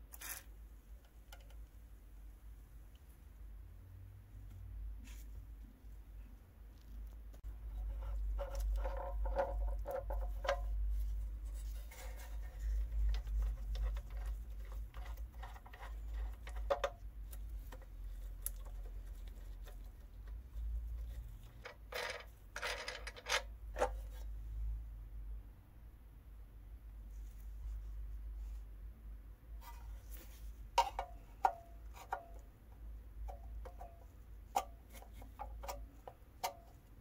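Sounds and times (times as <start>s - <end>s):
rusty nut scraping on threads: 7.6s - 24.3s.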